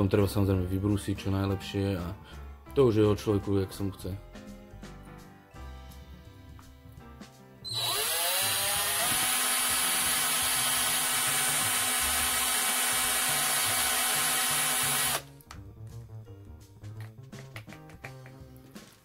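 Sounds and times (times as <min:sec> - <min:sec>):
electric drill boring into wood: 0:07.7 - 0:15.2.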